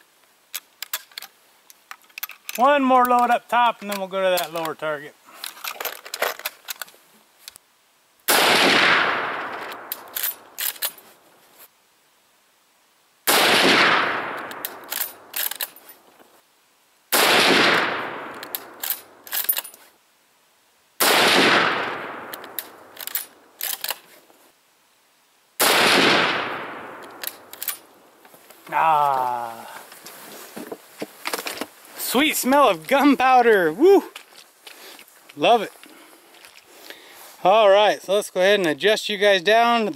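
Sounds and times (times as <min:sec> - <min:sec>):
rifle bolt clacks: 0:00.5 - 0:04.7, 0:09.3 - 0:11.0, 0:13.8 - 0:15.8, 0:17.5 - 0:19.7, 0:21.3 - 0:24.0, 0:26.3 - 0:27.9
rifle shots echoing: 0:08.3 - 0:10.5, 0:13.3 - 0:15.3, 0:17.1 - 0:19.2, 0:21.0 - 0:23.0, 0:25.6 - 0:27.9.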